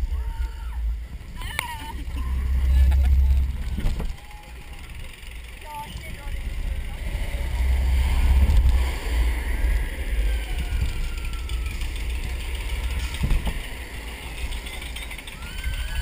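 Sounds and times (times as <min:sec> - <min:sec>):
roller coaster rumbling on track: 0:00.0 - 0:16.0
wind buffeting microphone: 0:05.8 - 0:16.0.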